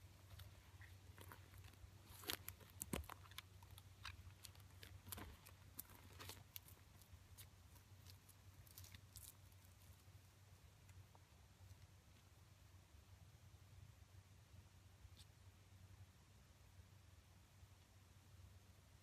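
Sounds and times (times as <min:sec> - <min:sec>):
faint clicks and crackles: 0:00.2 - 0:10.1.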